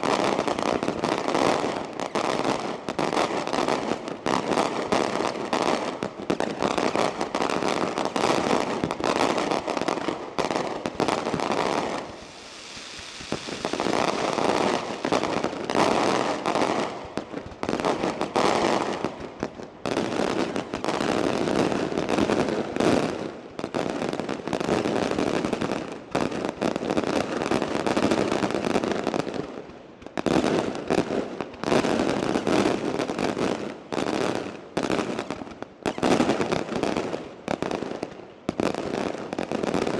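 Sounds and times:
fireworks bursting rapidly: 0.0s - 29.0s
fireworks hiss: 10.8s - 17.1s.

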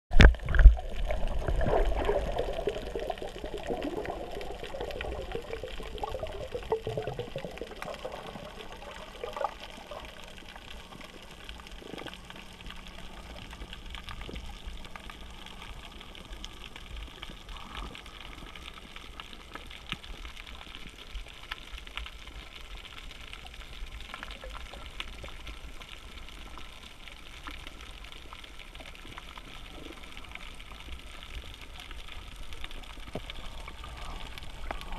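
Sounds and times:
water gurgling underwater: 0.1s - 18.3s, 28.9s - 34.9s
faint hiss with small clicks: 0.2s - 34.9s.

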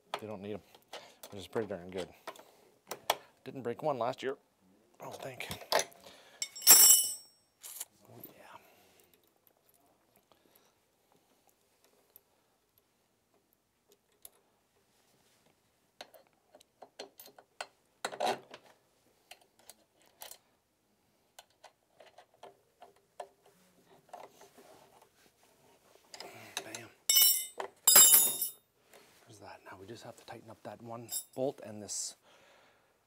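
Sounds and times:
metal parts clinking: 6.4s - 7.9s, 27.1s - 28.6s.

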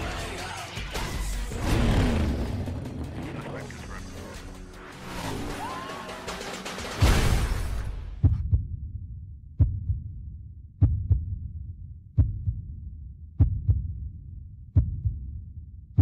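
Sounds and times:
heartbeat double thumps: 8.1s - 16.0s.

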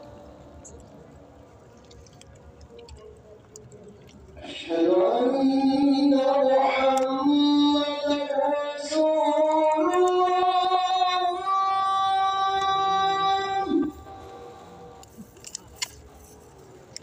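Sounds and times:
person singing long held notes: 4.4s - 15.0s.

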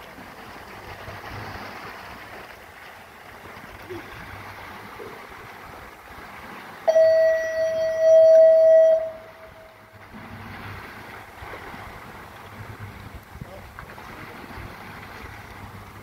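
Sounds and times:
wind and water hiss: 0.0s - 16.0s
loud steady horn tone: 6.9s - 9.8s.

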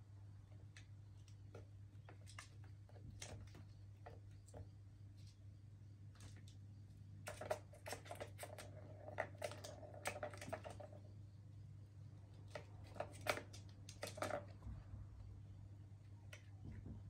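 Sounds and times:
plastic balls clicking in tracks: 7.3s - 11.1s, 12.4s - 14.6s.

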